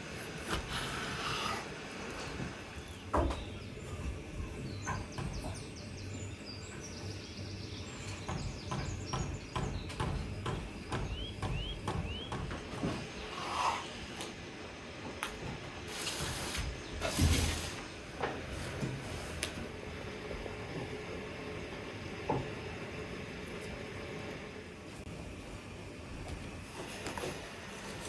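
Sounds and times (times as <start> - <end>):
small birds chirping: 0.4 - 14.2.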